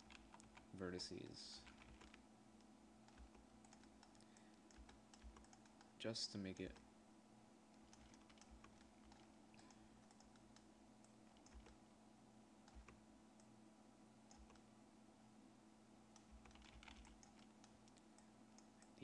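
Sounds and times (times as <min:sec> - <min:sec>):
low steady hum: 0:00.0 - 0:19.0
computer keyboard clicks: 0:01.6 - 0:02.2, 0:03.1 - 0:05.9, 0:07.8 - 0:10.7, 0:11.3 - 0:11.8, 0:12.7 - 0:13.0, 0:14.3 - 0:14.6, 0:16.2 - 0:18.0.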